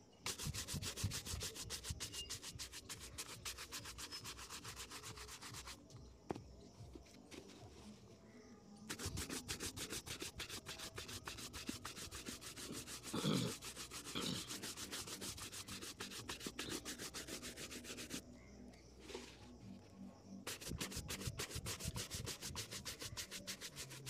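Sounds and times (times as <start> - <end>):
shoe brush buffing leather: 0.3 - 5.8, 8.9 - 18.2, 20.5 - 24.0.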